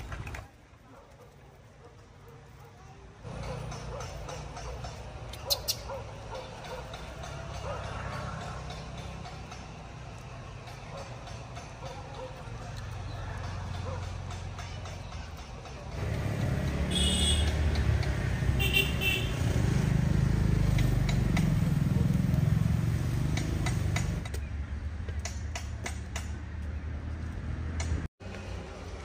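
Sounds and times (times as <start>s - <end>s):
vehicle engine rumbling past: 6.0s - 14.6s, 15.9s - 25.0s
short horn toots: 16.9s - 17.7s.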